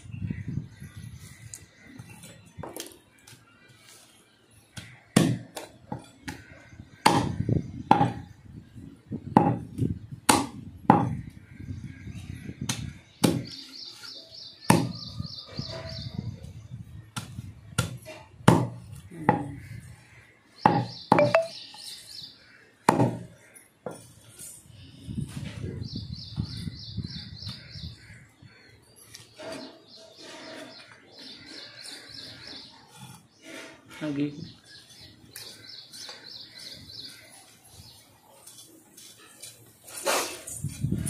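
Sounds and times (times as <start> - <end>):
birds chirping: 0.0 - 10.1, 10.7 - 18.3, 18.9 - 41.0
meat and bone chopping: 4.8 - 8.2, 10.3 - 11.1, 12.7 - 13.5, 14.7 - 15.0, 17.2 - 19.4, 20.7 - 21.0.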